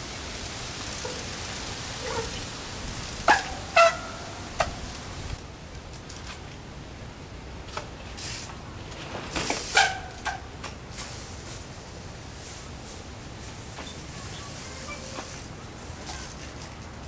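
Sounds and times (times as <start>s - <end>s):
brakes squealing: 0.0s - 5.4s, 13.4s - 16.5s.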